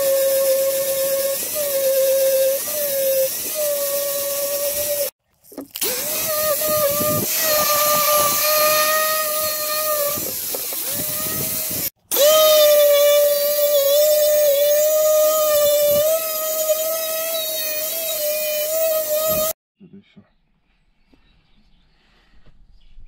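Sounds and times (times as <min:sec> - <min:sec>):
angle grinder motor whine: 0:05.8 - 0:19.6.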